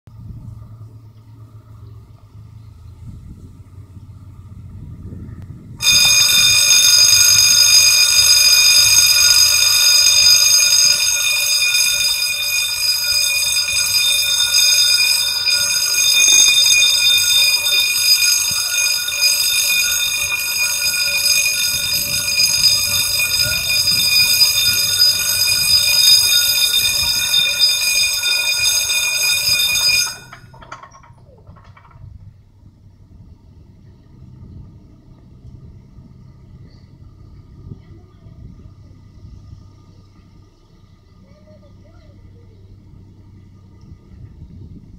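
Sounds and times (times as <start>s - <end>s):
electric warning bell ringing: 5.8s - 31.9s.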